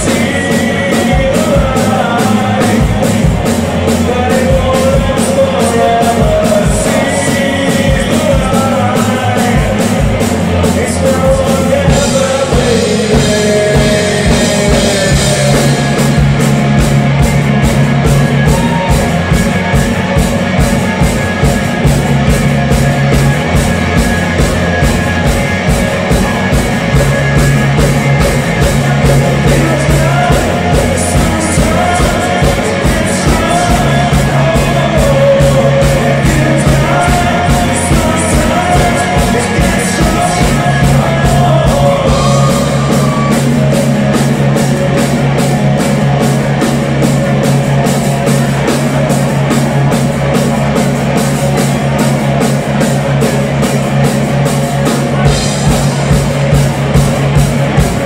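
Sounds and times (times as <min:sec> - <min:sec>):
person singing: 0:00.0 - 0:16.5, 0:17.2 - 0:45.9
drums beating: 0:00.0 - 0:58.0
live rock band playing: 0:00.0 - 0:58.0.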